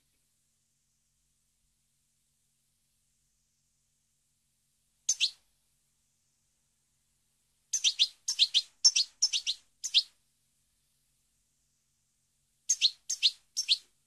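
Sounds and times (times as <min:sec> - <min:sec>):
bird chirping: 0:05.1 - 0:05.4, 0:07.7 - 0:10.2, 0:12.7 - 0:14.0
high bird twittering: 0:05.1 - 0:05.4, 0:07.7 - 0:10.1, 0:12.7 - 0:13.9.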